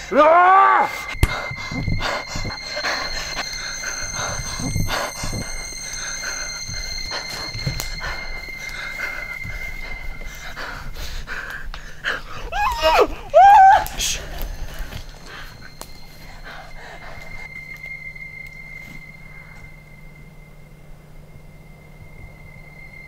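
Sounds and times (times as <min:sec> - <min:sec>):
high-pitched whine: 0:00.0 - 0:23.0
uneven breathing: 0:00.9 - 0:17.6
woman's rising cry: 0:12.5 - 0:14.0.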